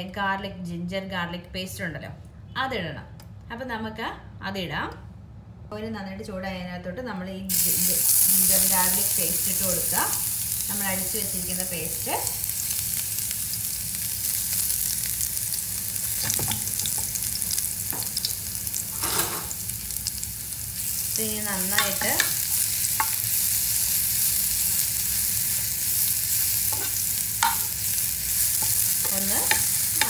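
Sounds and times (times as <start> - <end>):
paste sizzling in oil: 7.5 - 30.0
spoon scraping a pan: 18.9 - 19.6, 26.6 - 27.8, 28.5 - 30.0.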